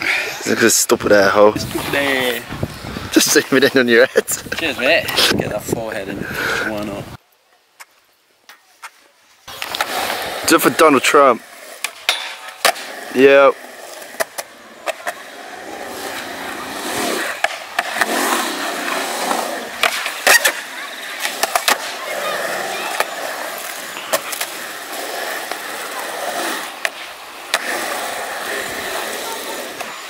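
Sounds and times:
skateboard wheels rolling on concrete: 0:00.0 - 0:30.0
skateboard clacking on ground: 0:11.4 - 0:30.0.

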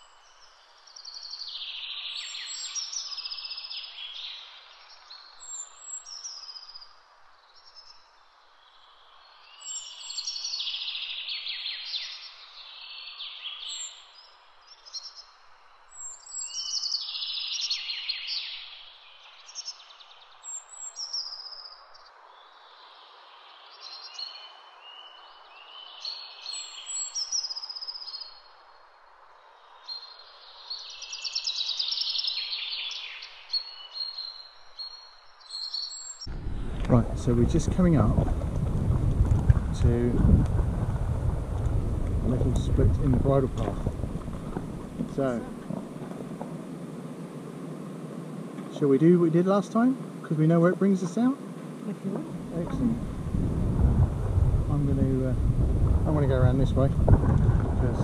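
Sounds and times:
songbird singing: 0:00.0 - 0:58.0
steady outdoor hiss: 0:00.0 - 0:58.0.

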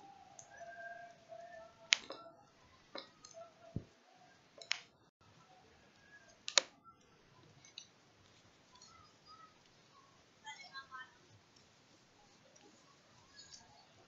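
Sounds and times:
sharp clicks: 0:04.6 - 0:04.9, 0:05.9 - 0:06.8.

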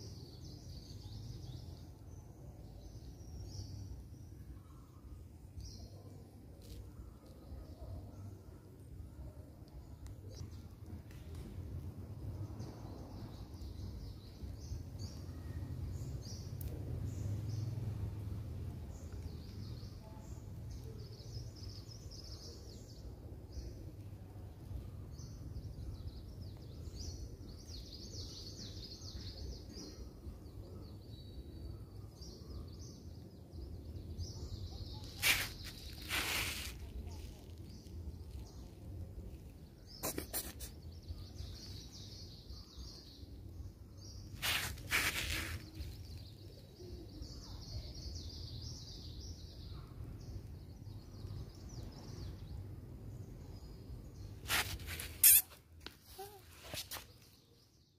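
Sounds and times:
small birds chirping: 0:12.2 - 0:57.9.

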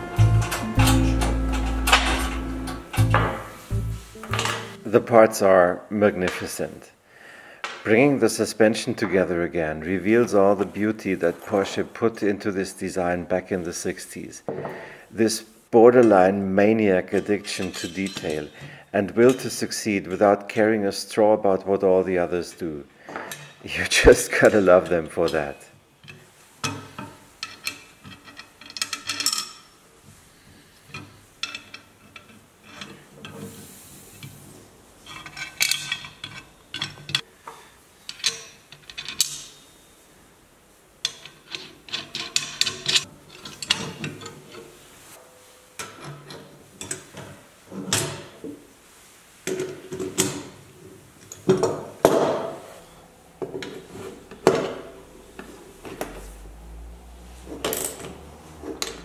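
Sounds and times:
metal washers and nuts clinking: 0:00.2 - 0:03.5, 0:04.3 - 0:04.8, 0:17.1 - 0:18.7, 0:25.3 - 0:29.8, 0:30.9 - 0:33.6, 0:35.0 - 0:37.2, 0:38.1 - 0:39.6, 0:41.0 - 0:44.7, 0:51.2 - 0:59.0.

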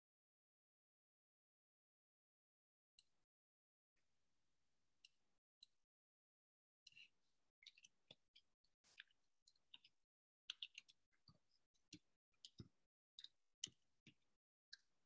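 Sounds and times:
faint small clicks and ticks: 0:06.8 - 0:15.0.

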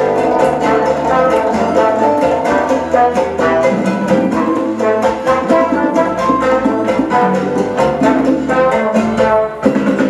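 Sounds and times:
salsa dance music: 0:00.0 - 0:10.0.

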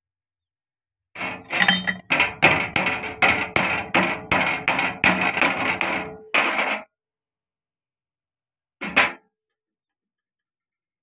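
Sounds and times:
hammer striking metal: 0:01.4 - 0:06.6.

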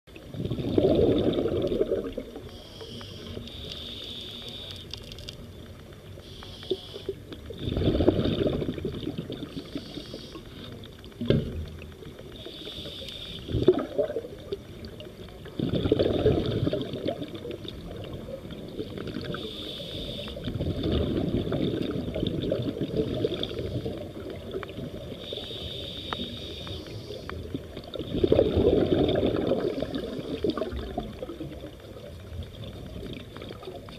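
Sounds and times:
exhaled bubbles rumbling: 0:00.1 - 0:02.6, 0:07.0 - 0:12.4, 0:13.4 - 0:19.5, 0:20.2 - 0:25.6, 0:26.2 - 0:33.9
regulator inhalation hiss: 0:02.5 - 0:04.9, 0:06.2 - 0:07.2, 0:09.6 - 0:10.7, 0:12.4 - 0:13.6, 0:19.3 - 0:20.5, 0:25.2 - 0:27.4.

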